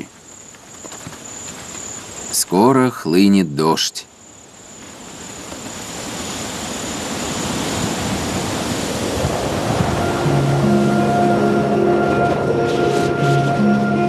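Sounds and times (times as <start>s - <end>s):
high insect trill: 0.0s - 14.0s
storm wind rushing: 4.7s - 14.0s
sustained music notes: 9.5s - 14.0s.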